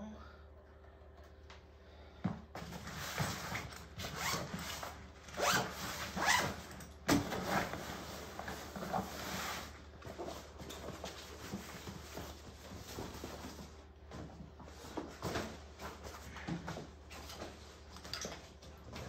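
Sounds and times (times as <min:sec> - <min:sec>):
zipper on a padded bag: 0:04.0 - 0:06.8.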